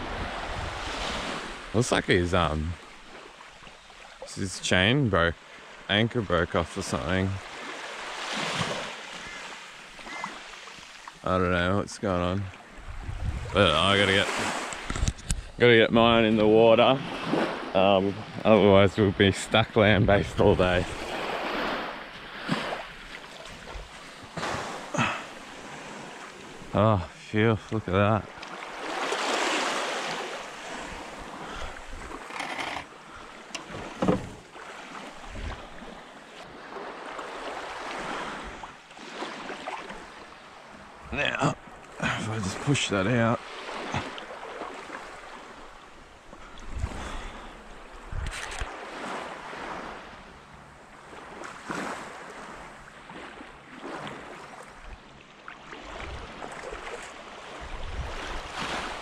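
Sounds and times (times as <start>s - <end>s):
wind on microphone: 0.0s - 1.1s, 12.8s - 13.8s, 14.4s - 15.6s, 35.2s - 35.7s, 46.5s - 47.3s, 48.0s - 48.7s, 57.6s - 59.0s
small waves washing on sand: 0.0s - 59.0s
wading through shallow water: 0.0s - 59.0s
wind buffeting microphone: 12.8s - 13.8s, 57.6s - 58.6s.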